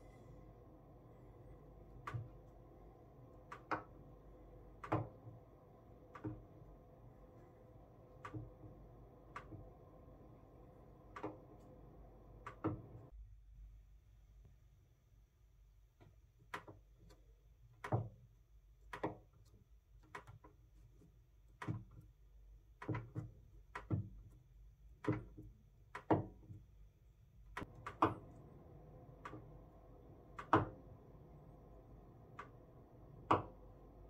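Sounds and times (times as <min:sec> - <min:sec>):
low steady hum: 0:00.0 - 0:14.6, 0:26.7 - 0:34.0.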